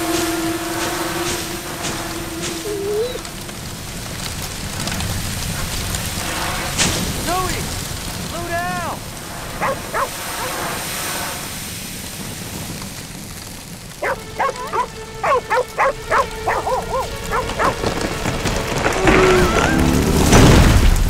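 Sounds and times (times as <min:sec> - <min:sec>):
rain hissing: 0:00.0 - 0:21.0
dog barking: 0:09.6 - 0:10.7, 0:14.0 - 0:17.8.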